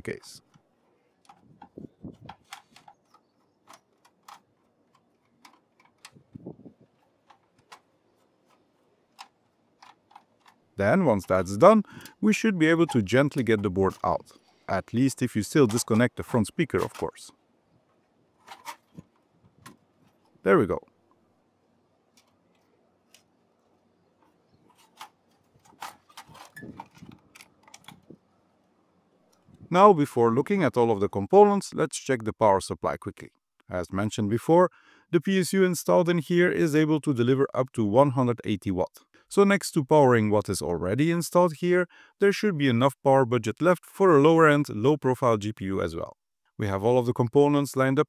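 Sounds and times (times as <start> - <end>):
screwdriver clicking on screws: 2.3 - 6.2, 6.8 - 12.1.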